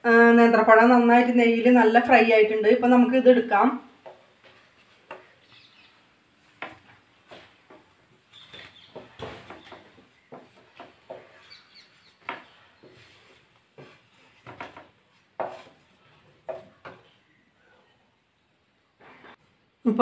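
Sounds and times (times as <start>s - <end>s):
spatula scraping frying pan: 4.2s - 17.3s.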